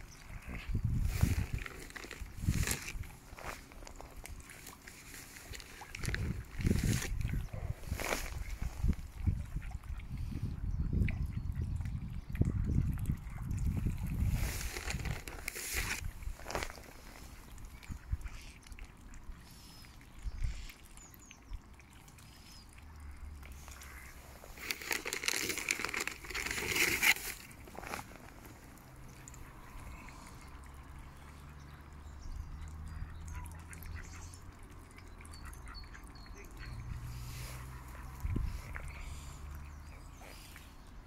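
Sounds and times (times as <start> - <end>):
ducks quacking: 35.4 - 39.4.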